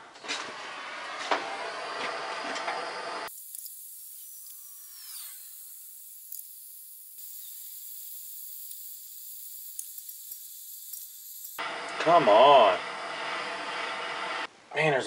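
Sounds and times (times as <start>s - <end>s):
gas torch hissing: 3.2s - 11.6s.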